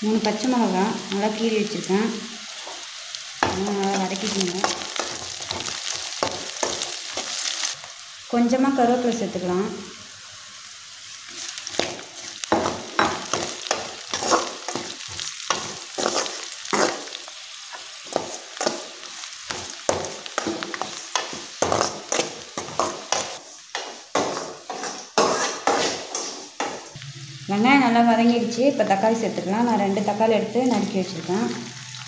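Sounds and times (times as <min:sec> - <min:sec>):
onions sizzling in oil: 0:00.0 - 0:32.0
spoon scraping a pan: 0:11.3 - 0:18.9, 0:20.4 - 0:26.8.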